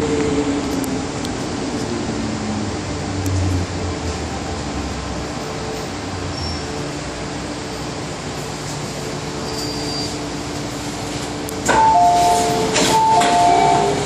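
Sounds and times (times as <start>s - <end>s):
train ventilation hum: 0.0s - 14.0s
train door clunks: 11.6s - 14.0s
two-tone door chime: 11.7s - 14.0s.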